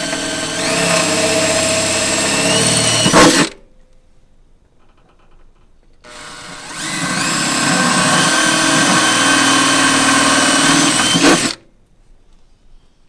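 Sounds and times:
cordless drill whining: 0.0s - 3.6s, 6.1s - 11.6s.

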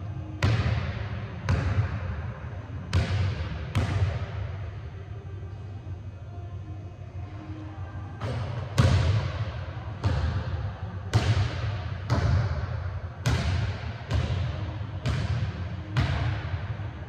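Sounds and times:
basketball bouncing on hardwood floor: 13.2s - 15.4s.

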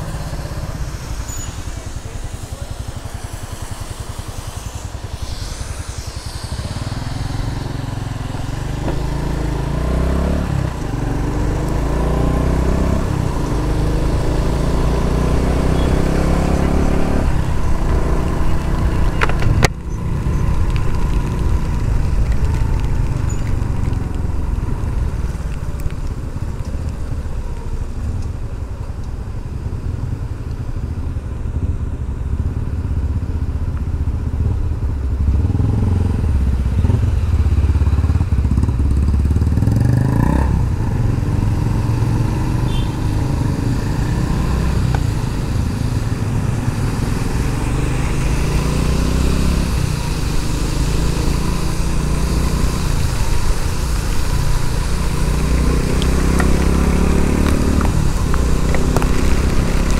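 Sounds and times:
motorcycle engine running: 0.0s - 59.9s
road and wind noise: 0.0s - 59.9s.

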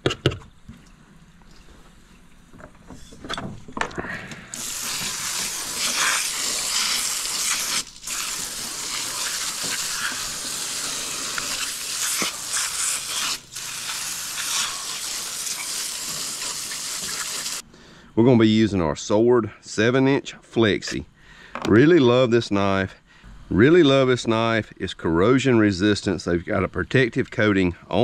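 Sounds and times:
hose nozzle spraying water: 4.5s - 17.6s.

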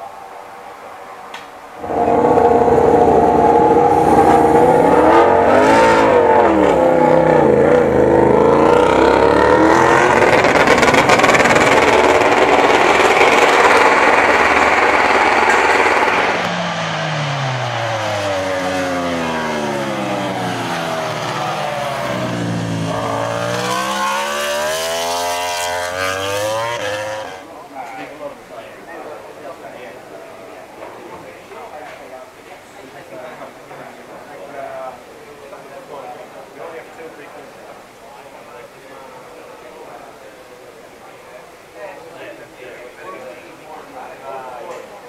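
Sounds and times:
motorcycle engine revving: 1.8s - 27.4s.

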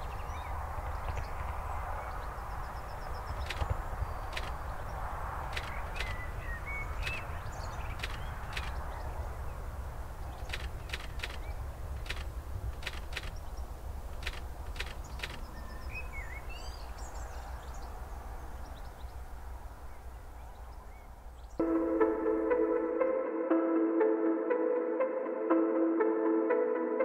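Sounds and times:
bird chirps and calls: 0.0s - 9.6s, 12.8s - 19.2s
ambient music sustained chord: 21.6s - 27.0s.

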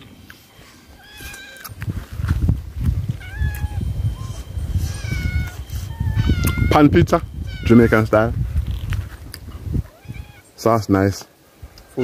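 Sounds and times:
cat meowing: 0.9s - 1.8s, 3.2s - 6.8s, 7.4s - 8.1s, 9.8s - 10.5s
low thumping rumble: 1.8s - 9.9s.

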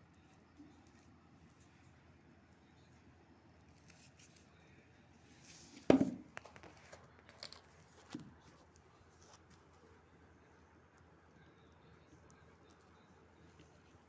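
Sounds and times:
metal container thud on floor: 5.9s - 6.3s.

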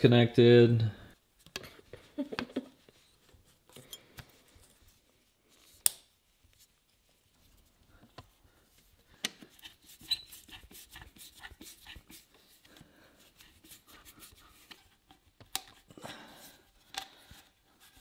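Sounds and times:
screwdriver clicking and scraping: 9.2s - 11.0s.

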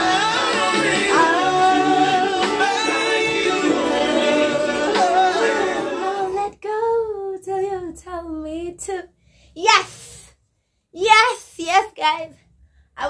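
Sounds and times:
woman singing over backing music: 0.0s - 6.6s
woman singing unaccompanied: 4.9s - 8.9s.

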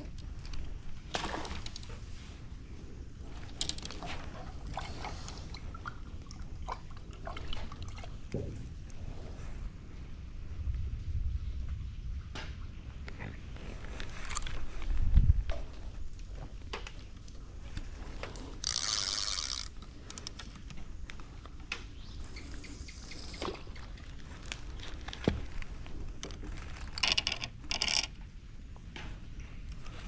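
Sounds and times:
fishing line clicks and scrapes: 3.3s - 5.7s, 13.1s - 15.1s, 16.9s - 21.5s, 22.2s - 28.2s.

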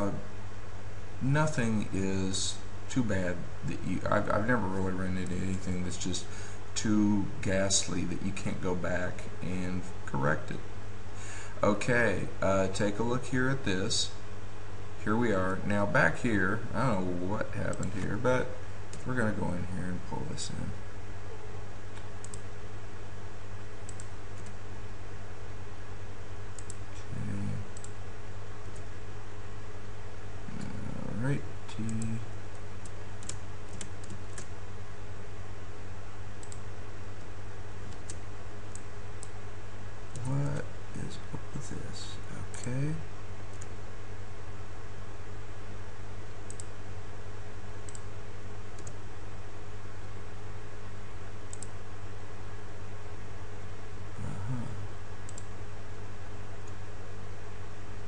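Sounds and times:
steady low hum: 0.0s - 58.0s
computer mouse clicks: 21.9s - 22.5s, 23.8s - 24.6s, 26.6s - 26.8s, 27.8s - 28.0s, 31.8s - 34.5s, 36.4s - 36.6s, 37.9s - 39.4s, 40.1s - 40.6s, 43.5s - 43.8s, 46.5s - 46.7s, 47.8s - 48.1s, 48.8s - 49.0s, 51.5s - 51.7s, 55.3s - 55.5s.

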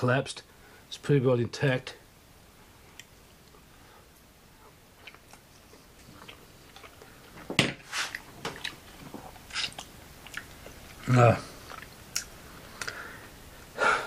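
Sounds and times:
person chewing: 5.0s - 7.3s, 8.0s - 13.0s.

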